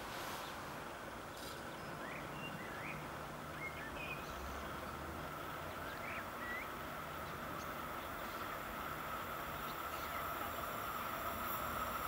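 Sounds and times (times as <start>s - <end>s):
faint background hum and rumble: 0.0s - 12.0s
small birds chirping: 0.2s - 11.8s.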